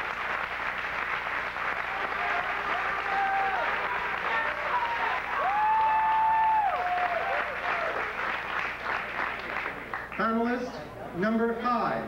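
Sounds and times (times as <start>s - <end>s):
audience applauding: 0.0s - 10.5s
audience cheering calls: 1.7s - 8.2s.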